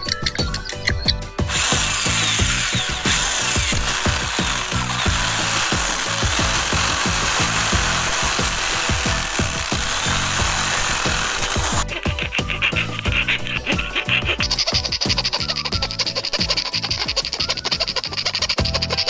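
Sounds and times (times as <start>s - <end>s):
background music with beat: 0.0s - 19.0s
electric drill grinding whir: 1.5s - 11.9s.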